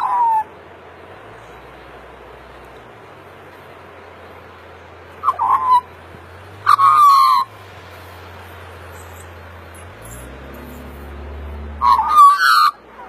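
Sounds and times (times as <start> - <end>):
magpie calls: 0.0 - 0.5, 5.2 - 5.9, 6.6 - 7.5, 11.8 - 12.8.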